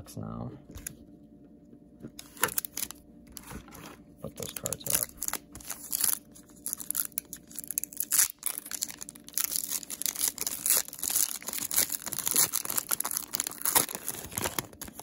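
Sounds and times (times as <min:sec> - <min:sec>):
foil wrapper crackling: 0:02.2 - 0:03.5, 0:04.4 - 0:15.0.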